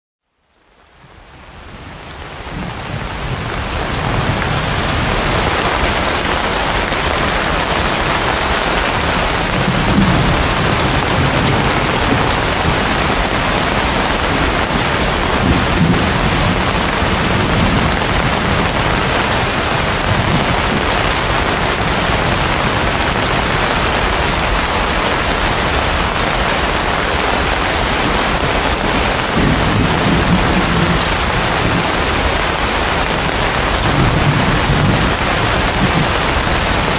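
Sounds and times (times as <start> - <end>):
heavy rain on leaves: 0.2 - 36.9.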